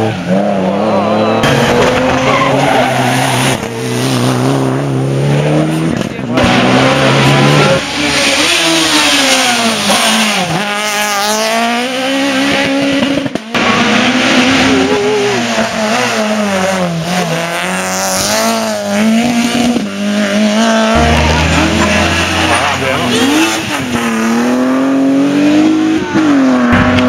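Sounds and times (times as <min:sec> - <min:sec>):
rally car engines revving: 0:00.0 - 0:27.0.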